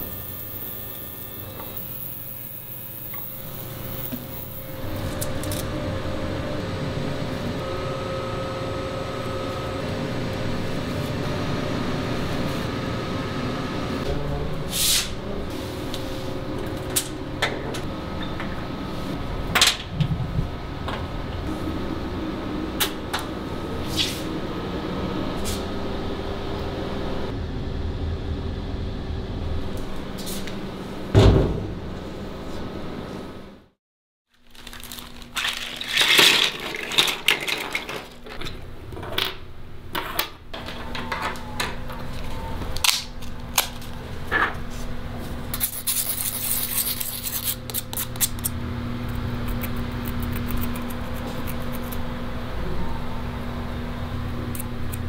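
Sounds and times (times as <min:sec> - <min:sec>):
machine humming: 0:00.0 - 0:33.6, 0:48.3 - 0:55.0.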